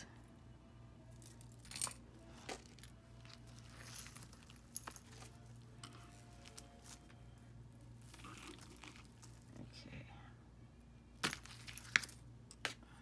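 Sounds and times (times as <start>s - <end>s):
low steady hum: 0.0s - 13.0s
jewelry beads clinking: 1.0s - 9.7s, 11.2s - 12.6s.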